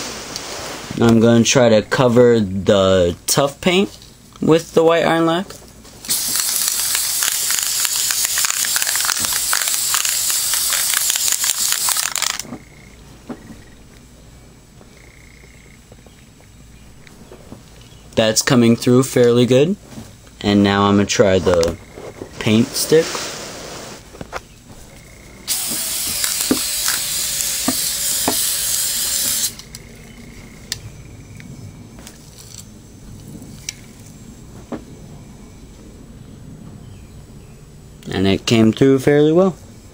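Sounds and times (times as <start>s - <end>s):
spray paint can hissing: 6.0s - 12.4s, 25.5s - 29.7s.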